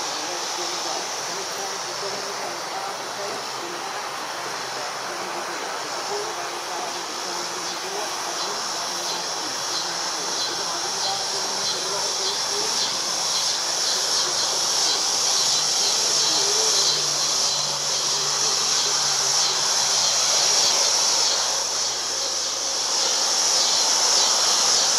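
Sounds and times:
distant traffic hum: 0.0 - 24.9
high-pitched insect chirring: 6.1 - 24.9.

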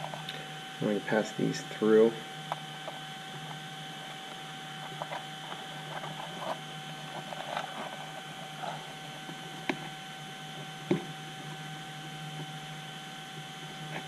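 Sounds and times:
steady background hum: 0.0 - 14.0
wires rustling and scraping: 2.5 - 10.8.

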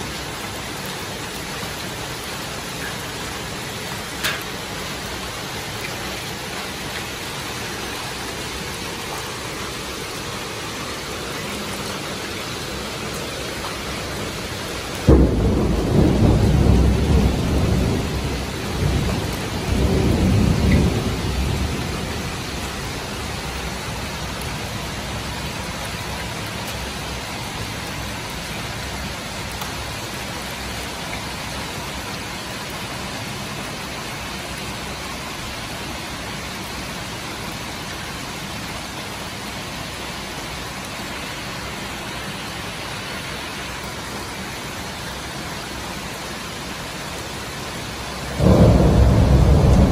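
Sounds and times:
heavy rain pouring: 0.0 - 49.9
thunderclap rumbling: 15.1 - 22.8, 48.3 - 49.9.

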